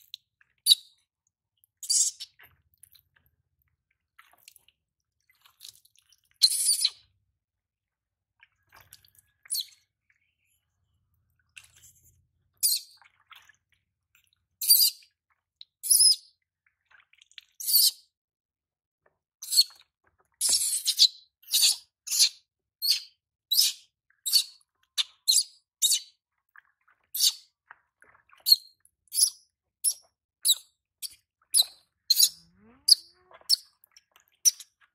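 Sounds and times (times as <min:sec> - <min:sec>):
baby monkey squealing: 0:32.1 - 0:33.6.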